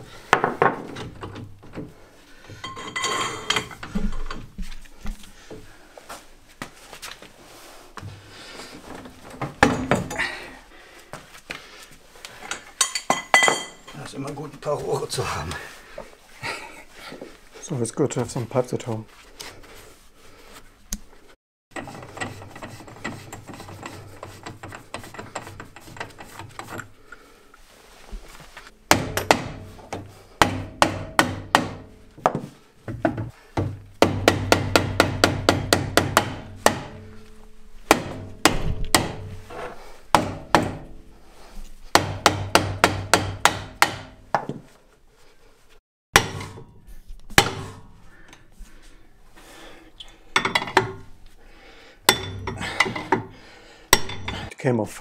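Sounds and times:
hammer knocking on metal: 28.9 - 37.1, 37.9 - 39.4, 40.1 - 40.9, 41.9 - 44.5.

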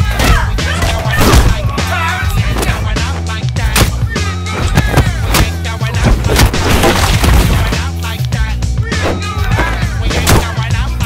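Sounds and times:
music with heavy bass: 0.0 - 11.0.

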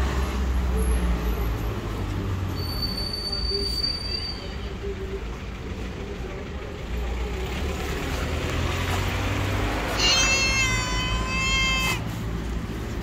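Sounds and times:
cat meowing: 9.9 - 12.1.

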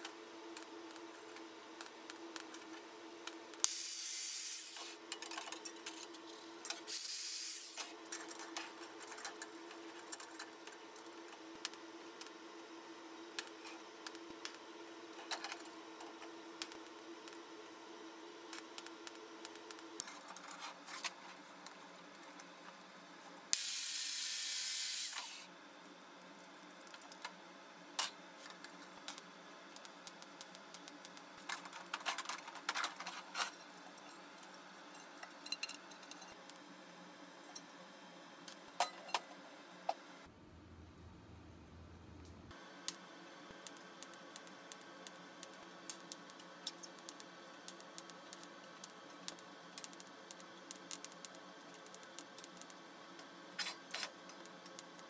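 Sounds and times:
faint steady hum: 0.0 - 55.0
hissing sprays from a nozzle: 23.6 - 25.5.

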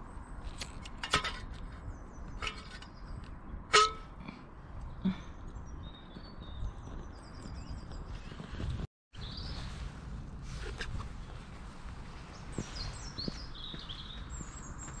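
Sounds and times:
small birds chirping: 4.7 - 9.9, 11.0 - 15.0.

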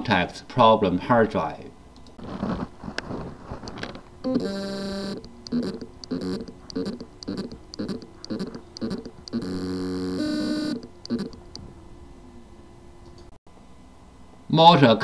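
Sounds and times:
hard drive motor buzzing: 4.2 - 11.7
rhythmic hard drive pulsing: 4.2 - 11.7.

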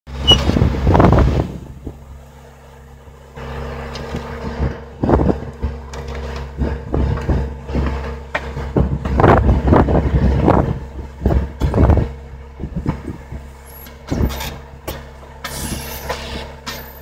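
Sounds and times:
wind on microphone: 0.1 - 2.0, 4.2 - 5.7, 6.6 - 14.5
diesel engine running: 0.1 - 17.0.

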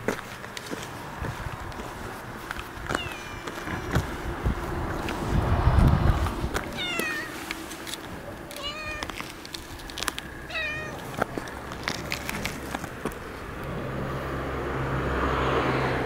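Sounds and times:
cat meowing: 2.9 - 3.9, 6.7 - 7.4, 8.5 - 9.2, 10.5 - 11.1
low rumble: 3.7 - 6.8.

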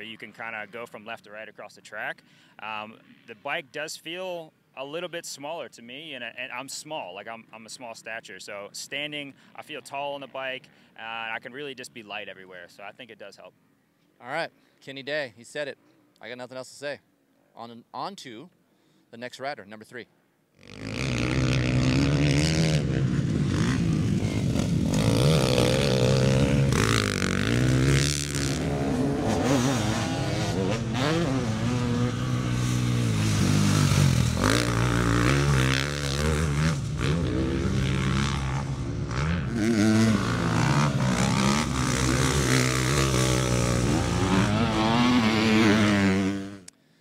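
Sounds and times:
motocross bike engine revving: 20.6 - 46.7.

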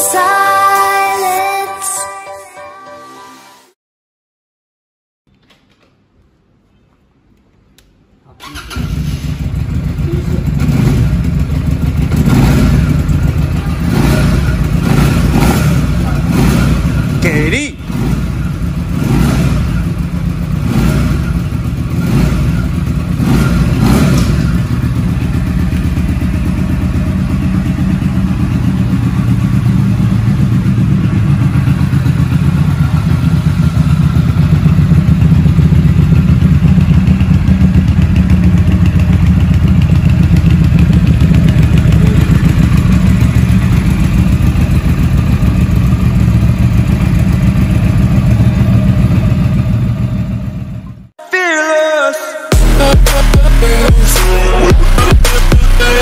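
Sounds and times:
motorcycle engine throttle blips: 8.4 - 17.2, 17.8 - 51.1
motorcycle engine idling: 8.4 - 51.1.

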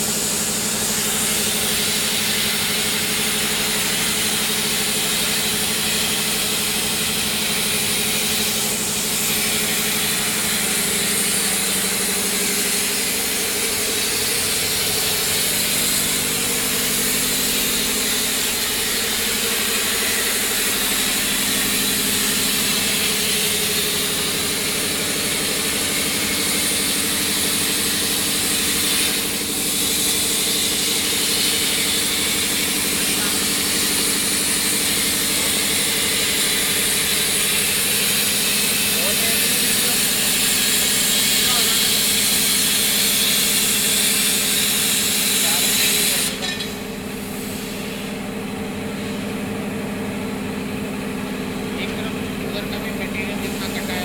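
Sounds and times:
plasma torch hissing: 7.3 - 48.2.

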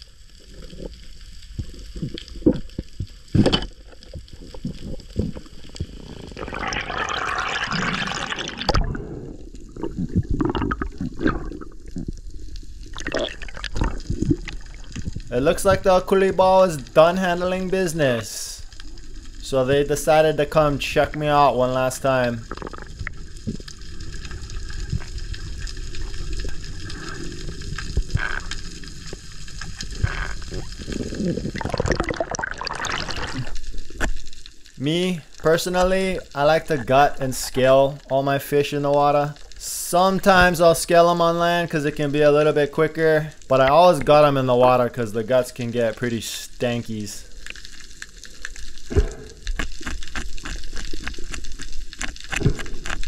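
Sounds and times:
low underwater rumble: 0.0 - 16.0, 47.3 - 53.0
underwater knocks and clicks: 1.5 - 6.5, 22.4 - 23.8, 27.8 - 33.3, 48.8 - 53.0
underwater rushing water: 1.5 - 38.8
loud gurgling water: 5.9 - 15.2, 29.8 - 33.8
sharp underwater clicks: 47.4 - 53.0.

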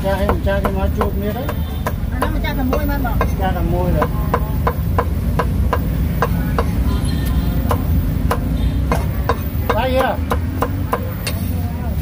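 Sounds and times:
cleaver chopping on wooden block: 0.1 - 3.4, 7.6 - 11.1.

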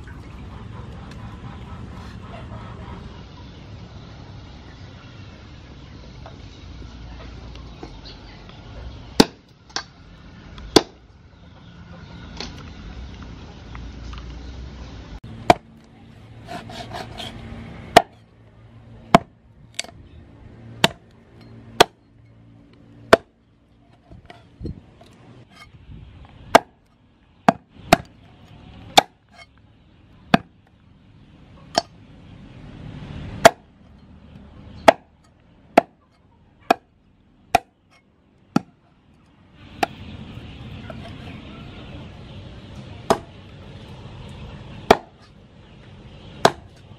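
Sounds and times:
cleaver chopping on wooden block: 16.5 - 17.3, 17.9 - 18.2, 19.1 - 19.9, 20.8 - 21.0, 23.1 - 23.4, 26.5 - 26.8, 29.0 - 29.2, 30.3 - 30.5, 33.4 - 33.7, 34.8 - 35.1, 35.7 - 36.0, 37.5 - 37.8, 38.5 - 38.7, 43.1 - 43.3, 44.9 - 45.2, 46.4 - 46.8.

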